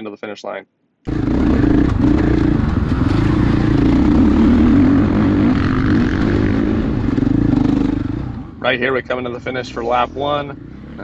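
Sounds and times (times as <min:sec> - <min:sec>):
dirt bike engine running: 0:01.1 - 0:09.0.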